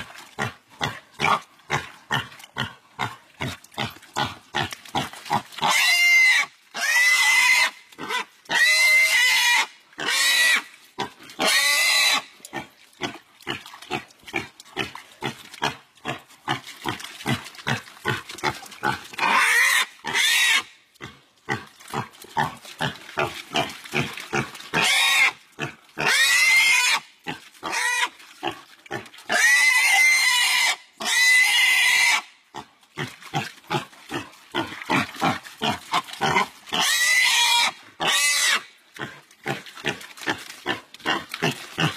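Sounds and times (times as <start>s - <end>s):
pig squealing: 5.3s - 10.7s, 11.4s - 12.3s, 18.9s - 20.7s, 24.8s - 25.4s, 26.0s - 28.1s, 29.3s - 32.3s, 34.6s - 38.7s.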